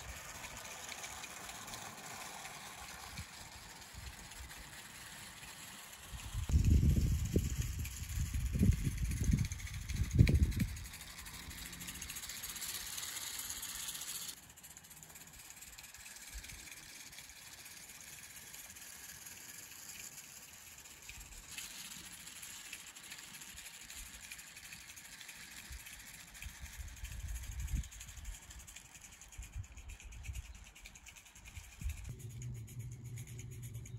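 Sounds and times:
small wheels rattling on track: 0:00.0 - 0:33.9
low rumble: 0:31.8 - 0:33.9.

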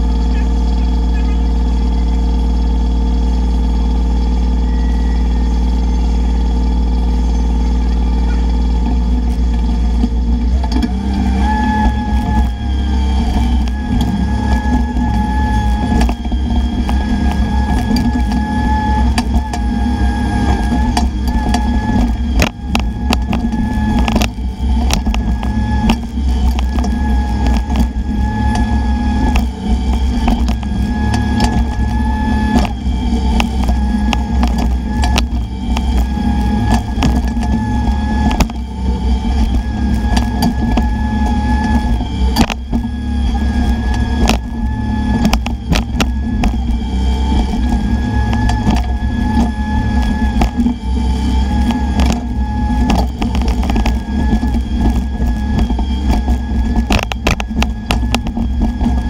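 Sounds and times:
excavator diesel engine under load: 0:00.0 - 0:59.0
hydraulic whine: 0:00.0 - 0:59.0.

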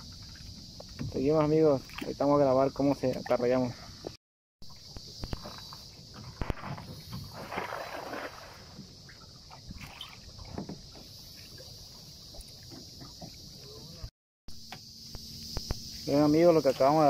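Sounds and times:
small knocks and drips: 0:00.0 - 0:01.2, 0:01.8 - 0:02.2, 0:08.8 - 0:13.8
high-pitched insect drone: 0:00.0 - 0:17.0
net splashing onto water: 0:06.4 - 0:08.8.

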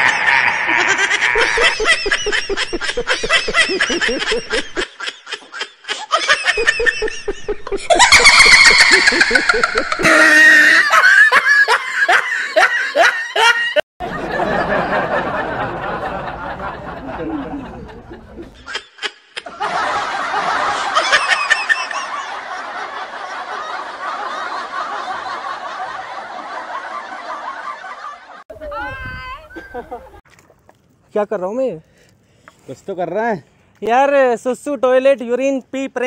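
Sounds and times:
men laughing heartily: 0:00.0 - 0:28.4, 0:29.5 - 0:30.2.

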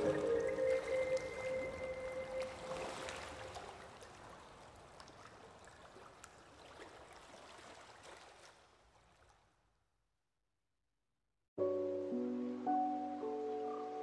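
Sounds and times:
background music: 0:00.0 - 0:03.4, 0:11.6 - 0:14.0.

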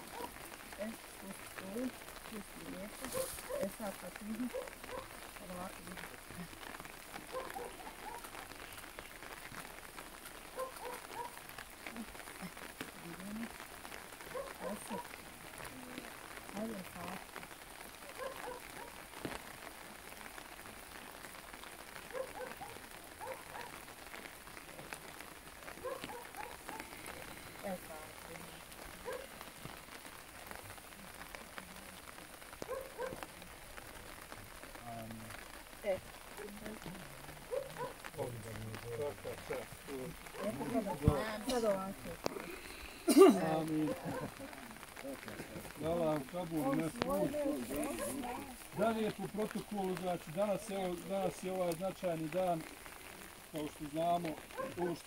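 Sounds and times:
rain pattering on umbrellas: 0:00.0 - 0:55.0
faint voice: 0:34.8 - 0:49.1.

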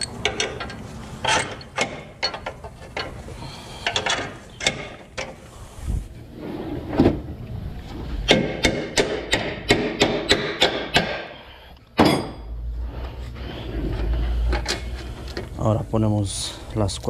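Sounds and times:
metal clinks and knocks: 0:00.0 - 0:03.2.

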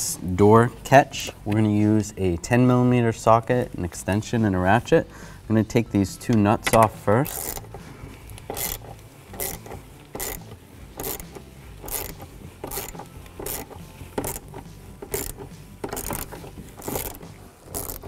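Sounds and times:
ratchet clicking: 0:06.7 - 0:18.0.

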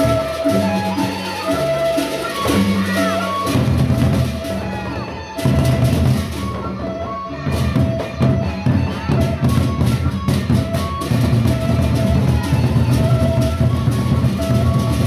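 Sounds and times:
barrel drums beaten with sticks: 0:00.0 - 0:06.8.

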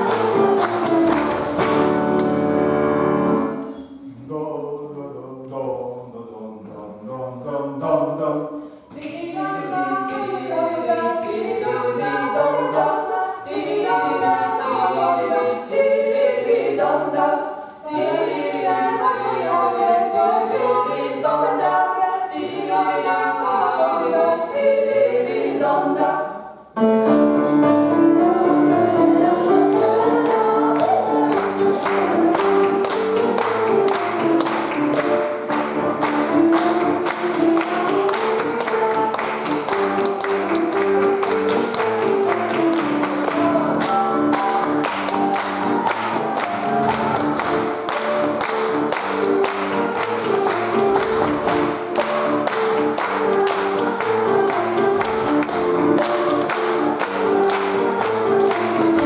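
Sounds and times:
hand clapping: 0:00.0 - 0:02.5, 0:29.2 - 0:59.0
piano playing: 0:00.0 - 0:03.8, 0:26.5 - 0:59.0
women singing in harmony: 0:08.9 - 0:26.6, 0:27.9 - 0:35.5, 0:36.2 - 0:47.4.

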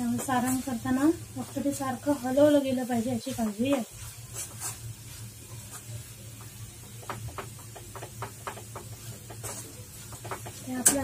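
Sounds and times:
spoon scraping and tapping a pan: 0:00.0 - 0:00.8, 0:03.2 - 0:04.8, 0:05.5 - 0:11.0.

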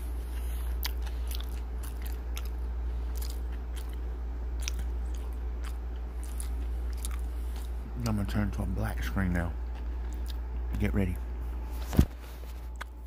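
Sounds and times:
person chewing food: 0:00.0 - 0:08.2, 0:09.6 - 0:10.7, 0:12.5 - 0:13.0
steady low hum: 0:00.0 - 0:13.0.

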